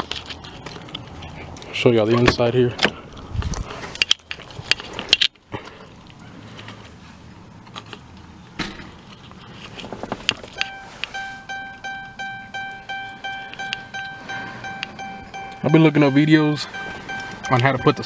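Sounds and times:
car warning chime dinging: 10.6 - 18.0.

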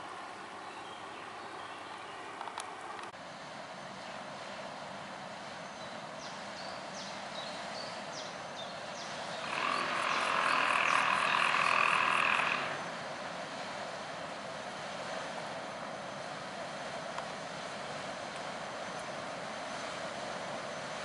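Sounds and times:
outdoor background noise: 0.0 - 21.0
loud pulsed animal call: 9.4 - 13.0.

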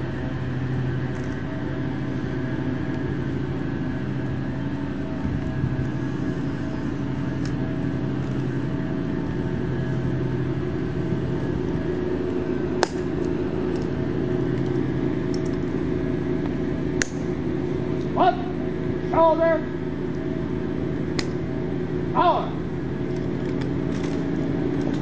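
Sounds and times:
low mechanical drone: 0.0 - 25.0
person shouting a command: 18.1 - 19.8, 22.1 - 22.7.

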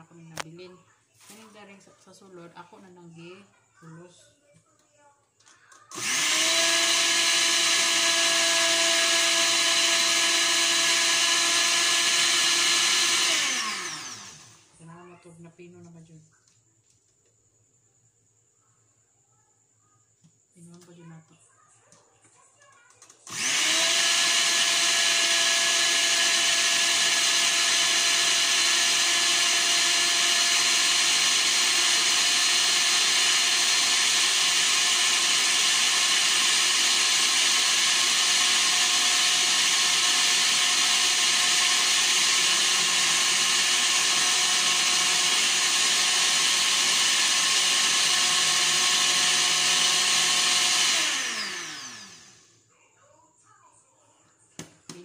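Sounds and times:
blender running: 5.7 - 14.8, 23.2 - 52.6.

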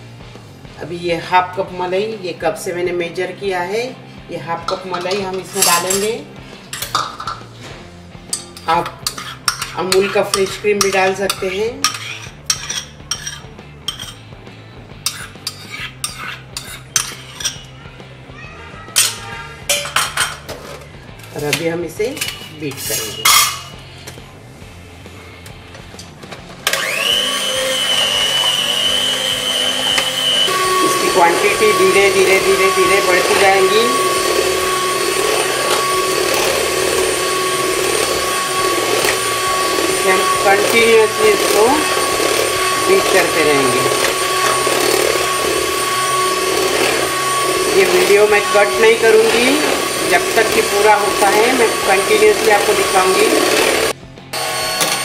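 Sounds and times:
metal spoon scraping ceramic bowl: 4.7 - 6.2, 8.3 - 14.3, 15.0 - 17.7, 22.1 - 23.8
electric hand mixer whipping: 8.6 - 14.1, 26.6 - 55.0.

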